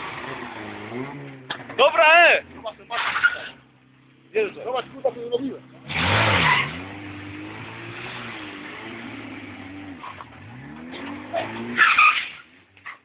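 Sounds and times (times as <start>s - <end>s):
car engine revving hard: 5.8s - 12.4s
spinning tyre hissing: 5.8s - 13.0s.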